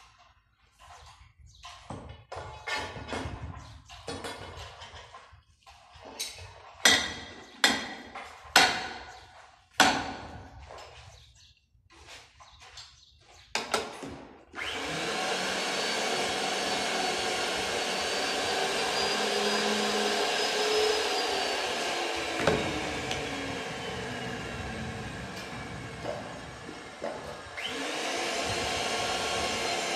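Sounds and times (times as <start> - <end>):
pipe threading machine whining: 14.6 - 29.9.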